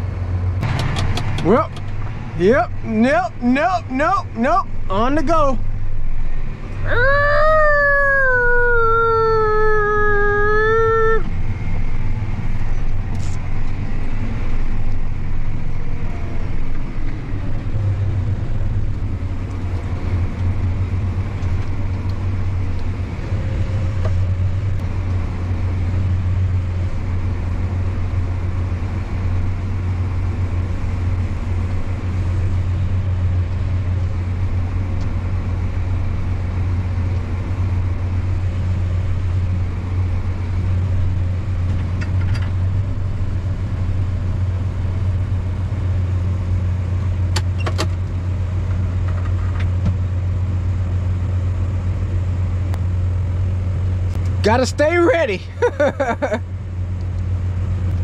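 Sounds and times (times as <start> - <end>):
tractor engine running: 0.0 - 7.4.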